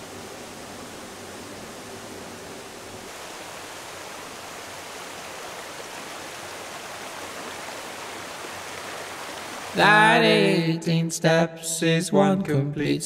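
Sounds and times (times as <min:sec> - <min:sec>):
water flowing over rocks: 0:00.0 - 0:10.2.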